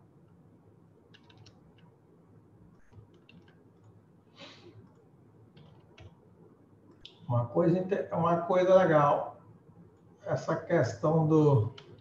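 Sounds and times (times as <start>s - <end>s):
computer mouse clicks: 1.1s - 1.9s, 2.8s - 4.0s, 4.8s - 6.2s.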